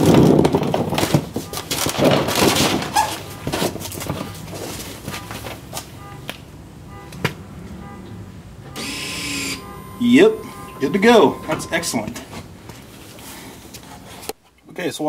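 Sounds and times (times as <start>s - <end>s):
actuator motor whirring: 8.8s - 11.9s
faint short high tones: 8.8s - 12.0s.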